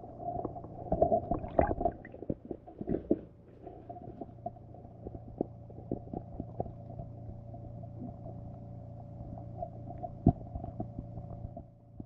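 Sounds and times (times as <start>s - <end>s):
underwater low hum: 0.0s - 12.0s.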